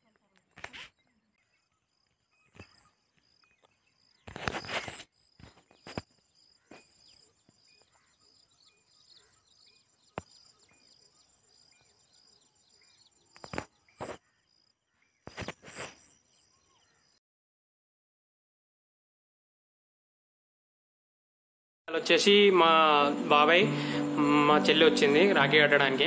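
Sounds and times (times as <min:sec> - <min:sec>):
insects chirping: 0:01.4 - 0:17.2, 0:22.0 - 0:26.0
rustling on microphone: 0:04.2 - 0:06.1, 0:15.3 - 0:16.1.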